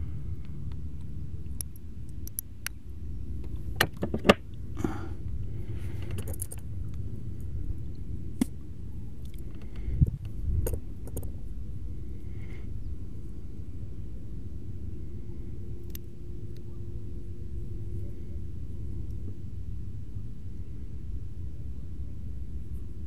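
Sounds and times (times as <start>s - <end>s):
steady low rumble: 0.0s - 23.0s
fishing tackle clicks and rustling: 5.8s - 7.5s, 9.1s - 11.5s.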